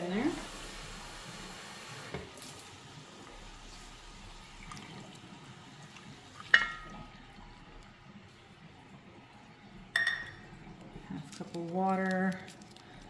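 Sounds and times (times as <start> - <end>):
faint hiss from hot pot: 0.0 - 4.7
broth pouring into pot: 0.0 - 13.0
cup clinking on pot rim: 6.5 - 6.9, 9.9 - 10.4.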